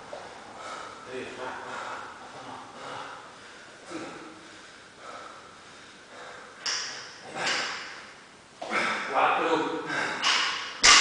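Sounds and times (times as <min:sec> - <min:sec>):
man breathing hard: 0:00.4 - 0:08.0, 0:09.8 - 0:10.6.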